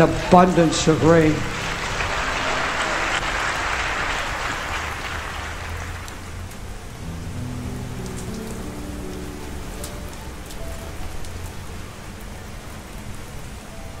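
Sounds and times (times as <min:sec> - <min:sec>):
rain falling: 0:00.0 - 0:14.0
soft held music notes: 0:07.0 - 0:14.0.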